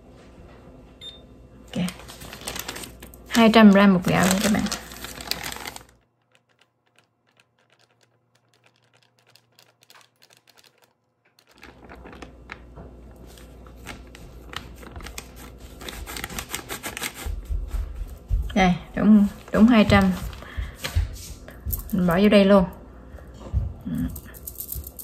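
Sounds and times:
plastic bag crinkling: 1.8s - 17.4s.

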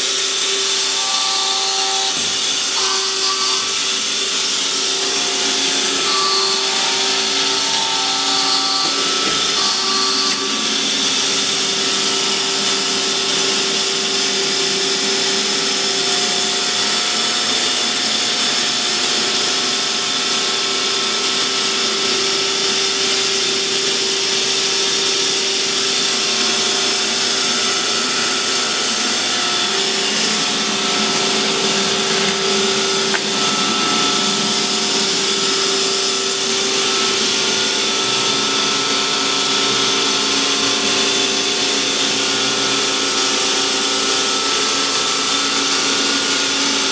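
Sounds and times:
hydraulic pump and motor running: 0.0s - 46.9s.

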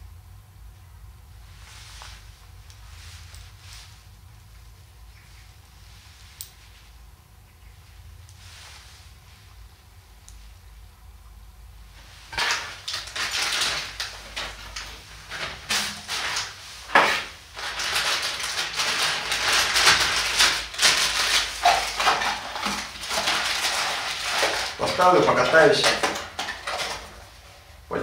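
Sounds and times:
plastic rustling and clicking: 12.3s - 27.6s.

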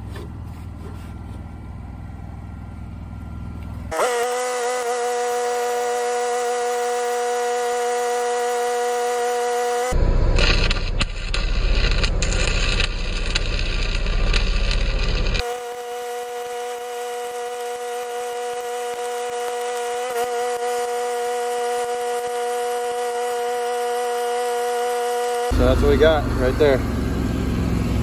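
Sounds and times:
welding arc crackling: 3.9s - 26.8s
loud rumbling noise: 10.0s - 15.4s, 25.5s - 28.0s.

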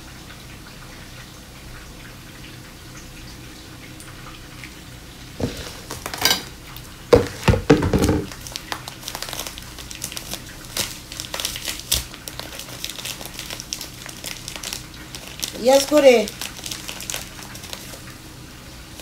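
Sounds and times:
low steady hum: 0.0s - 19.0s
bag handled with knocks and rustling: 7.2s - 8.3s.

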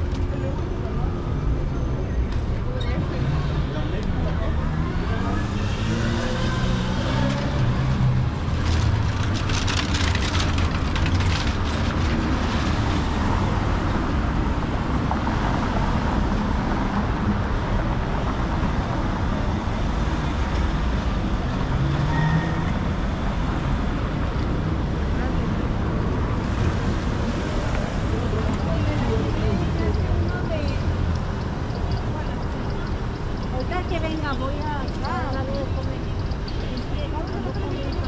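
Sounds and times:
street traffic rumble: 0.0s - 38.0s.

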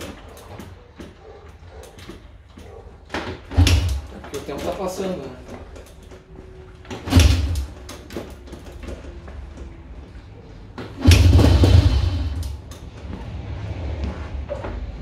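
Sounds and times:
motorcycle engine cranking: 1.8s - 9.2s, 10.8s - 13.1s
kick-starter clunk: 6.9s - 9.1s, 10.8s - 12.7s.

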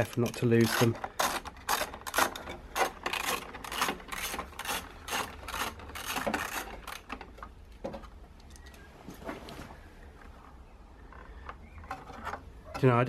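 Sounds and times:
hands rasping nuts off bolts: 0.0s - 8.2s.

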